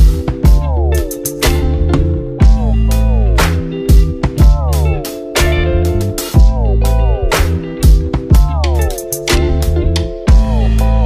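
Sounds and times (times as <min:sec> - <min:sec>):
kick drum: 0:00.0 - 0:00.8, 0:02.0 - 0:02.8, 0:03.9 - 0:05.6, 0:06.4 - 0:06.8, 0:07.8 - 0:08.9, 0:10.3 - 0:10.6
bass line: 0:00.0 - 0:11.0
electric guitar chords sliding down: 0:00.0 - 0:11.0.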